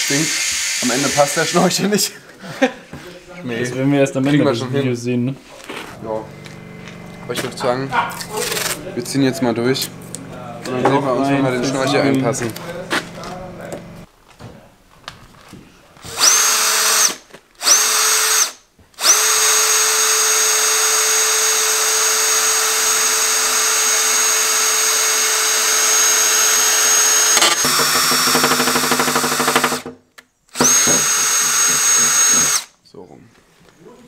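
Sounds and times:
cordless drill whining: 0:00.0 - 0:01.5, 0:16.0 - 0:32.7.

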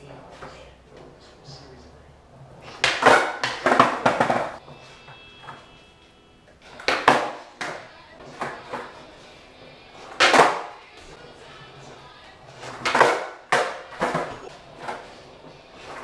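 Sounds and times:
skateboard clacking on concrete: 0:02.6 - 0:05.8, 0:06.6 - 0:16.0.

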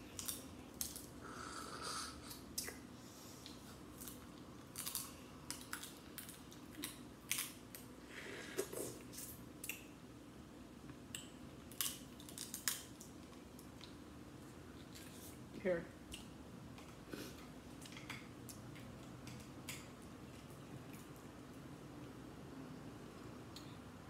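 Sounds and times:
sucking and chewing: 0:03.4 - 0:07.9
crab shell cracking: 0:04.0 - 0:07.9, 0:11.2 - 0:14.0.

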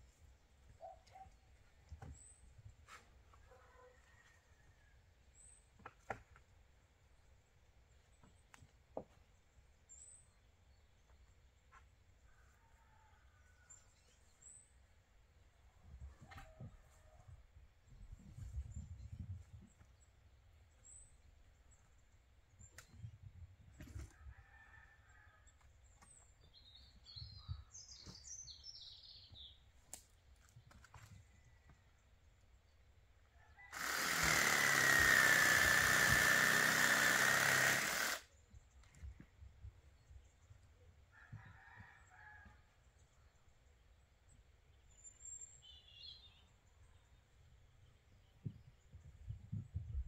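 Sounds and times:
electric saw cutting timber: 0:33.7 - 0:38.2.

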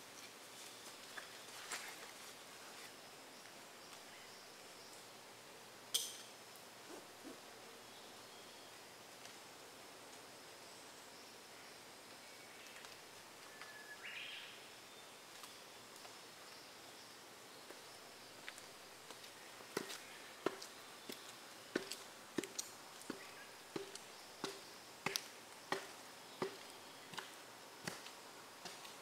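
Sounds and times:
boots on concrete steps: 0:18.4 - 0:29.0.

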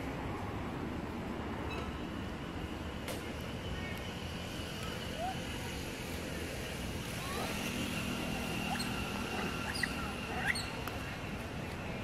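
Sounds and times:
outdoor background hum: 0:00.0 - 0:12.0
animal squeaks and chirps: 0:09.6 - 0:10.8.

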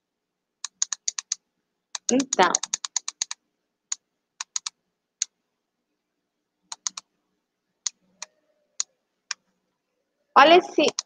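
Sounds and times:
computer keys clicking: 0:00.6 - 0:05.4, 0:06.7 - 0:07.1.

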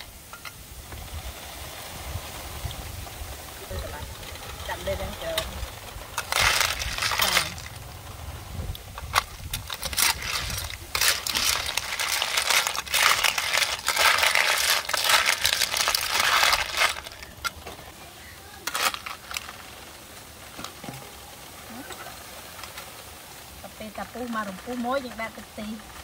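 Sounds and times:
snail shells rattling in a wok: 0:04.0 - 0:08.2, 0:08.8 - 0:20.6
metal spatula stirring: 0:09.0 - 0:17.5.

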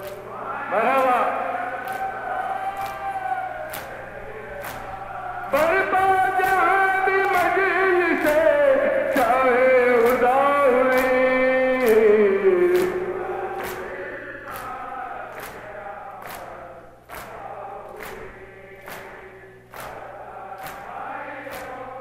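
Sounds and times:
men chanting mourning dirge: 0:00.0 - 0:02.7, 0:03.6 - 0:22.0
chest-beating slaps: 0:12.7 - 0:18.2, 0:18.8 - 0:21.8.

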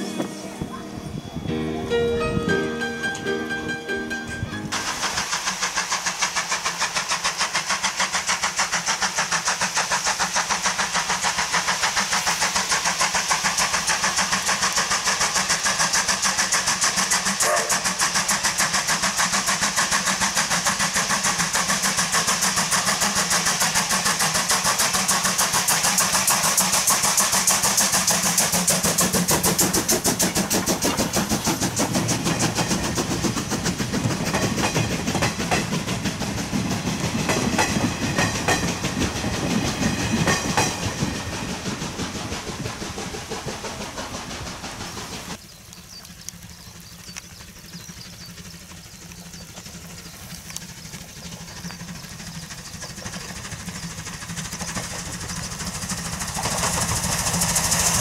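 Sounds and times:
steam locomotive chuffing: 0:00.0 - 0:58.0
train wheels on rails: 0:00.0 - 0:58.0.

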